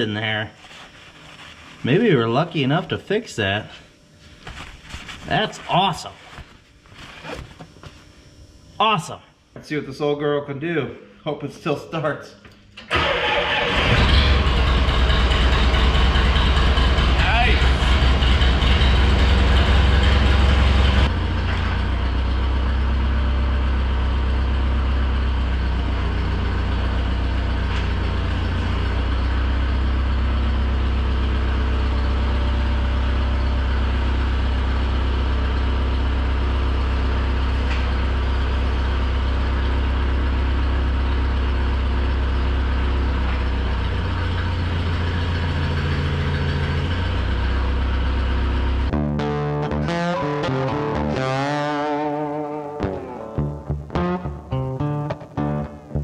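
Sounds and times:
diesel engine running: 12.9s - 52.2s.

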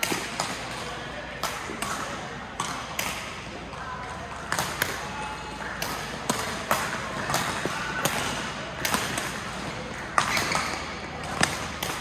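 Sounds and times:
rackets striking shuttlecock: 4.4s - 12.0s.

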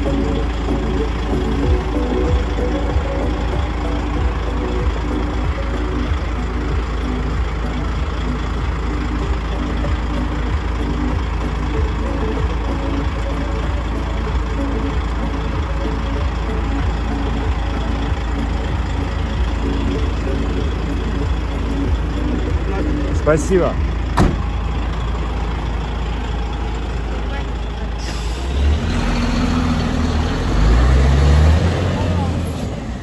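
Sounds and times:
diesel engine idling: 0.0s - 33.0s.

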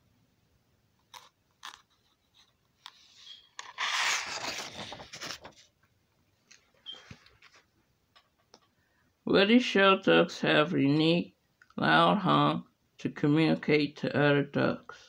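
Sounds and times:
paper crinkling and rustling: 1.1s - 5.8s.

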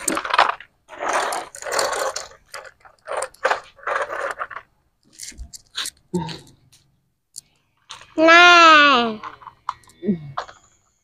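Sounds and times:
toy trucks scraping on gritty floor: 0.0s - 6.0s
child's voice: 8.2s - 9.2s.

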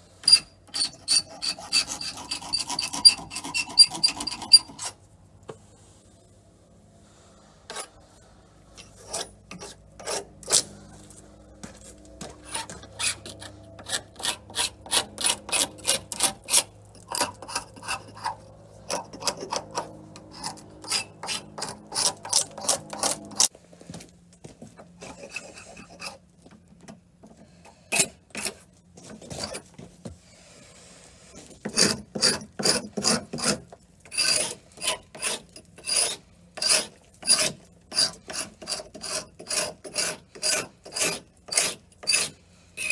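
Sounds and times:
scraper rasping paint off wood: 0.7s - 5.0s, 31.4s - 42.9s.

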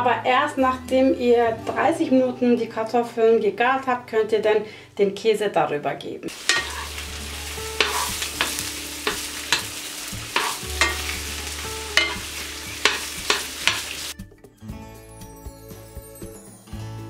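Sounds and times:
metal spoon scraping pan: 6.3s - 14.1s
asparagus sizzling in pan: 6.3s - 14.2s.

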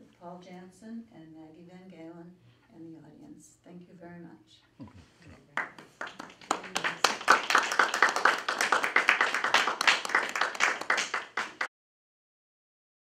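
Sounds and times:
audience applauding: 5.6s - 11.7s.

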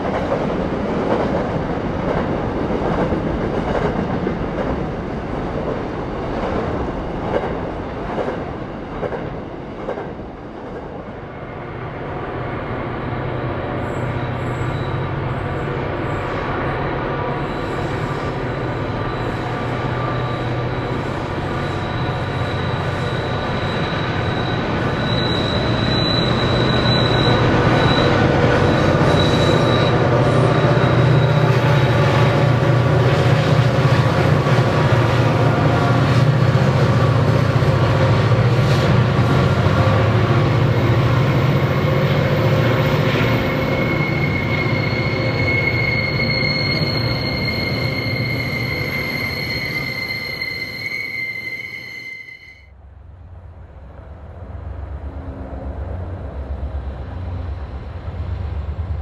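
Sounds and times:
diesel locomotive engines: 0.0s - 59.0s
wheel squeal: 17.4s - 32.1s, 43.1s - 52.7s.

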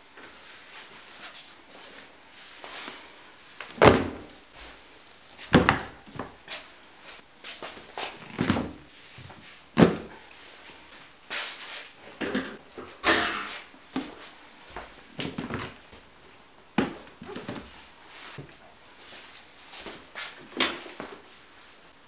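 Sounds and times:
books thudding on wooden floor: 3.7s - 4.3s, 5.5s - 6.4s, 9.8s - 10.1s.

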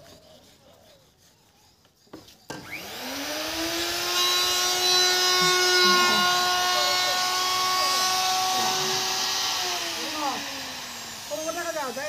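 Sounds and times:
power tool motor spinning up: 2.5s - 12.0s.

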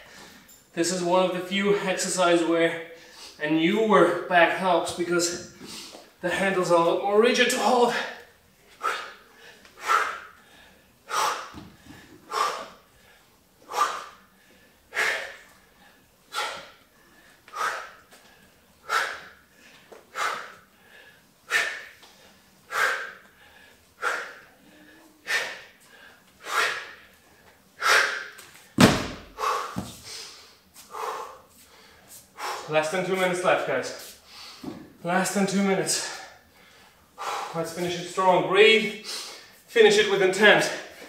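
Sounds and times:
man exhaling forcefully: 11.1s - 12.8s, 13.7s - 14.2s, 14.9s - 15.5s, 16.3s - 16.8s, 22.7s - 25.8s, 27.8s - 28.4s, 29.0s - 31.4s
sandbag thudding on mat: 28.8s - 30.0s.

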